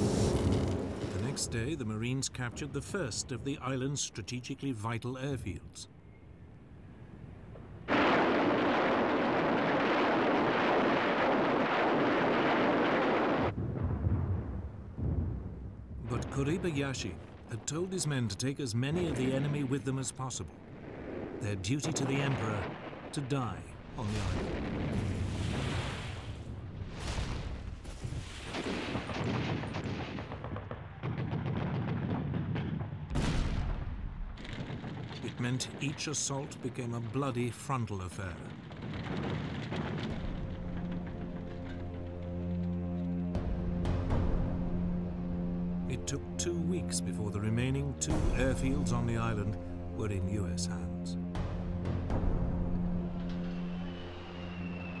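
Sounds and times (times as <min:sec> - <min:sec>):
sharp blast: 0:00.0 - 0:01.8
steady low rumble: 0:05.4 - 0:25.5, 0:33.2 - 0:54.1.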